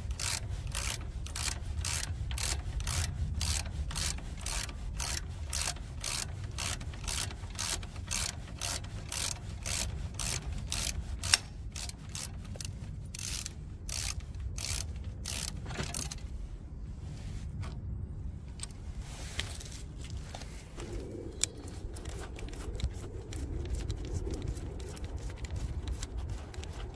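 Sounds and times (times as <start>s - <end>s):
ratchet wrench clicking: 0.1s - 16.4s.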